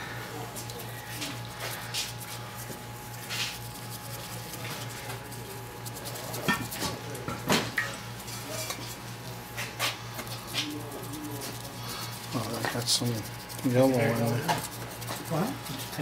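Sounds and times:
brush clinking against metal bowl: 0:03.3 - 0:09.0, 0:09.6 - 0:16.0.

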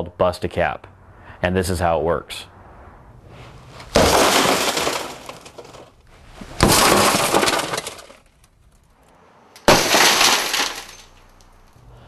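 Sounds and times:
car window glass shattering: 0:03.9 - 0:08.5, 0:09.6 - 0:11.5.

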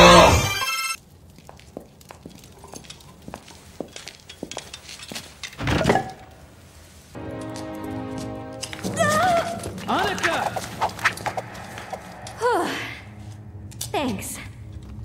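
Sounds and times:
steady chord: 0:07.2 - 0:09.0
drawn-out vocal note: 0:10.5 - 0:14.7.

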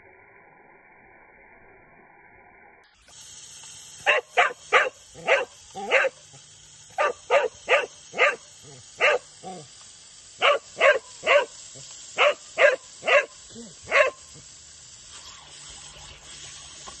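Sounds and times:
dog barking: 0:04.0 - 0:06.2, 0:06.9 - 0:09.6, 0:10.4 - 0:11.6, 0:12.2 - 0:14.3.

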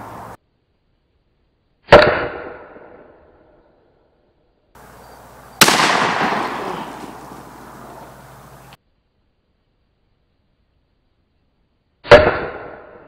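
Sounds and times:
shotgun blasts: 0:05.6 - 0:08.8, 0:12.0 - 0:13.0.

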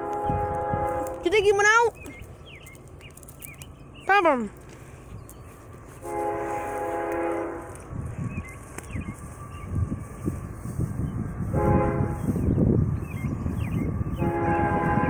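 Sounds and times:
locomotive air horn: 0:00.0 - 0:01.3, 0:06.0 - 0:07.9, 0:11.5 - 0:12.5, 0:14.1 - 0:15.0
train rumble: 0:00.0 - 0:15.0.

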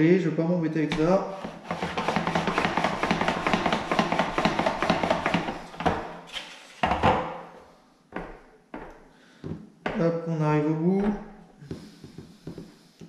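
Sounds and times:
board knocking on worktop: 0:00.9 - 0:06.1.

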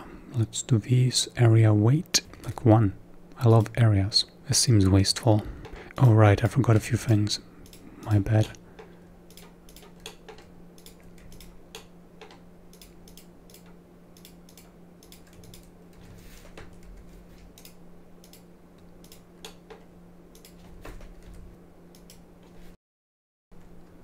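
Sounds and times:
faint steady hum: 0:00.0 - 0:22.8, 0:23.6 - 0:24.0
computer mouse and keyboard clicks: 0:08.8 - 0:22.6.

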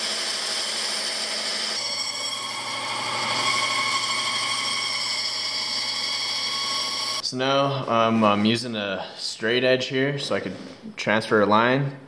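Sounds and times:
band saw cutting plywood: 0:00.0 - 0:07.2.

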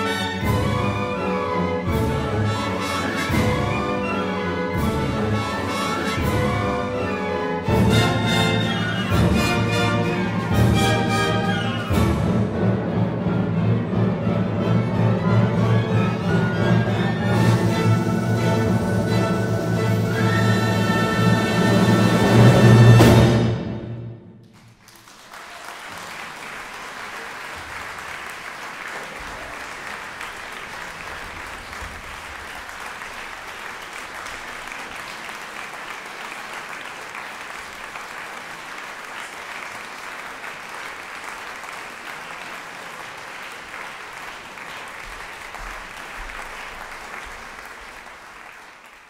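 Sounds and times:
audience applauding: 0:24.4 - 0:49.0.

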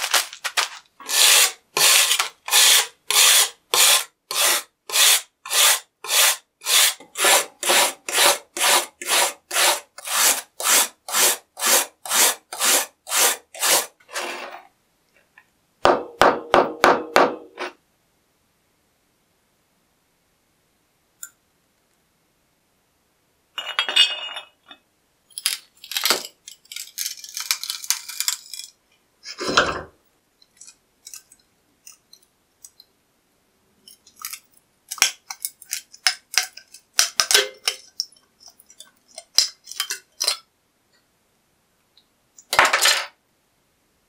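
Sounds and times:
metal fragments clinking: 0:23.6 - 0:27.4.

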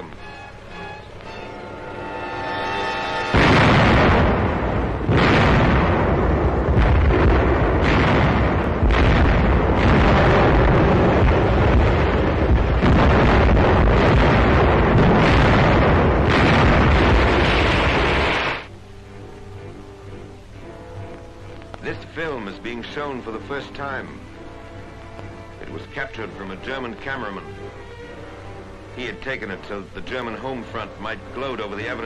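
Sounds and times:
explosions: 0:03.2 - 0:18.7.

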